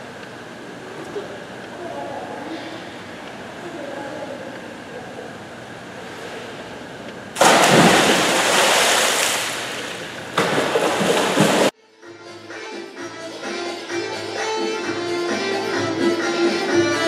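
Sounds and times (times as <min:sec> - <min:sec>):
splashing water: 0:07.4 - 0:11.7.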